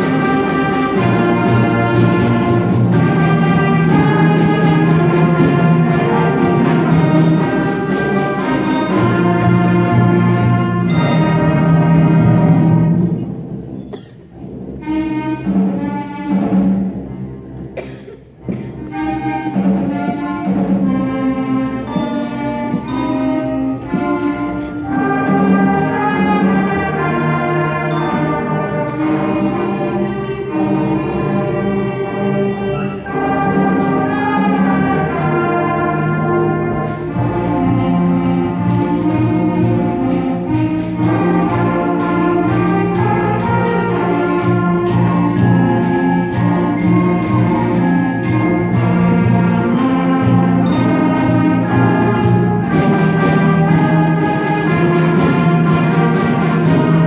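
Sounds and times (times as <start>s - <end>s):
concert band playing: 0.0s - 57.0s.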